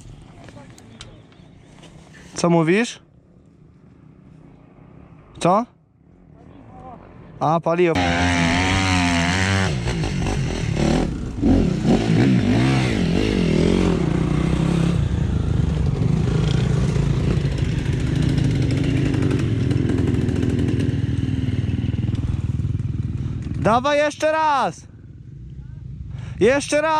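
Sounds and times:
pit bike engine revving: 8.0 - 23.8.

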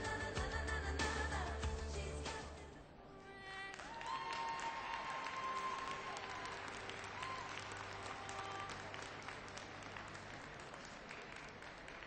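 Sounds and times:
audience applauding: 3.7 - 12.0.

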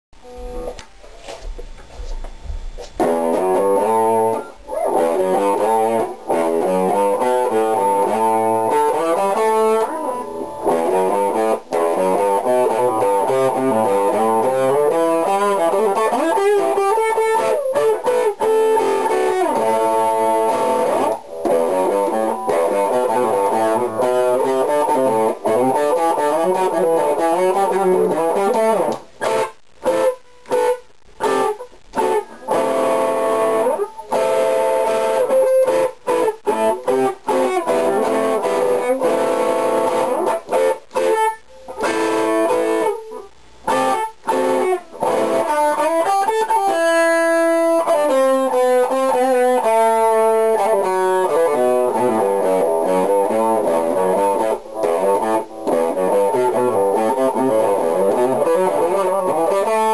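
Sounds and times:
electric guitar playing: 0.2 - 1.0, 3.0 - 59.9.

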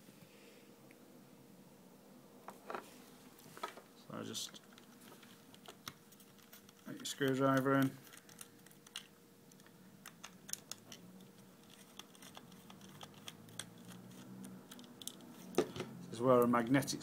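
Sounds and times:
screwdriver clicking and scratching: 5.5 - 15.3.

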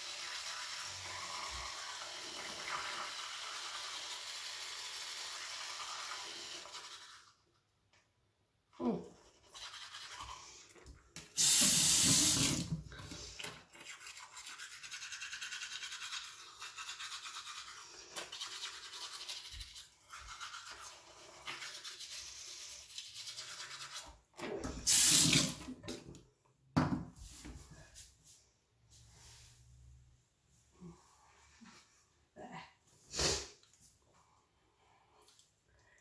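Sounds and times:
toothbrush scrubbing teeth: 0.0 - 7.4, 9.1 - 12.5, 13.1 - 24.3.

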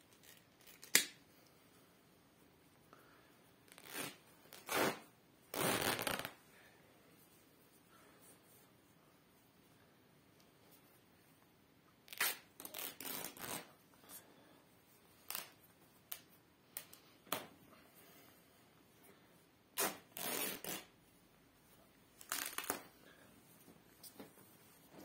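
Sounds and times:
fabric ripping: 3.7 - 6.4, 12.1 - 13.8, 15.3 - 15.6, 19.8 - 20.9, 22.2 - 22.9.

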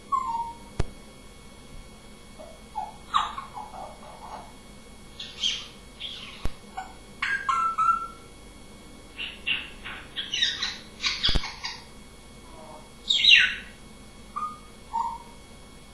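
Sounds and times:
parrot chirping and squawking: 0.1 - 0.6, 2.4 - 4.6, 5.2 - 8.3, 9.2 - 11.9, 13.1 - 13.8, 14.4 - 15.4.

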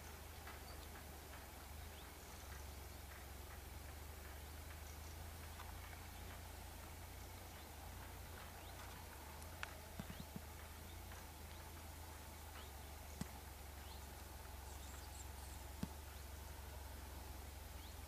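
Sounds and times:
steady low rumble: 0.0 - 18.0
sharp taps: 2.5 - 14.6, 15.8 - 16.2.

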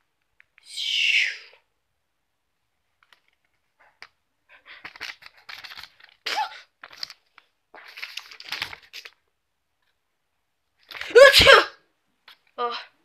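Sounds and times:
paper rustling and crinkling: 3.0 - 9.3.

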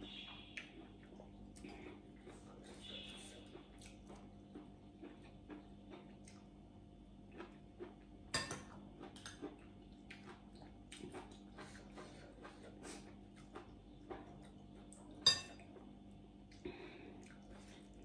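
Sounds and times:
faint hum: 0.0 - 18.0
soft chewing: 0.0 - 18.0.

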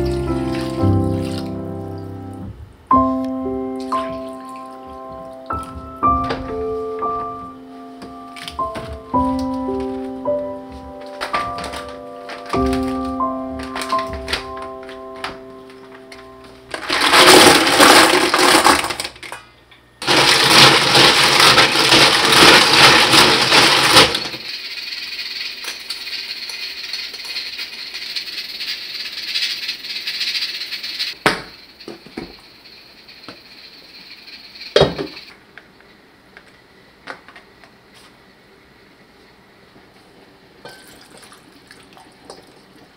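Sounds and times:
washing noise: 0.0 - 2.2, 40.8 - 42.9
shells clattering in steel bowl: 16.7 - 19.4, 20.1 - 35.3.

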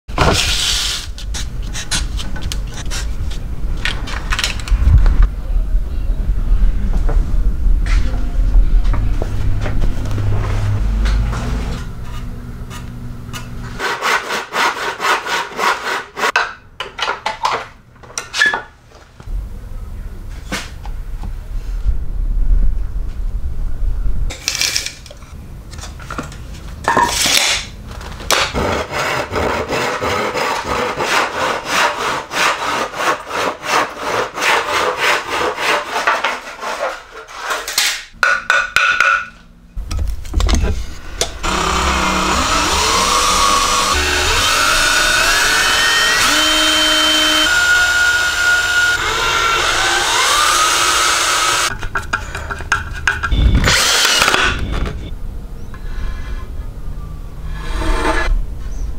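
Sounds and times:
hand saw cutting wood: 13.8 - 16.4, 28.3 - 37.9
whirring with rising whines: 41.2 - 51.7.

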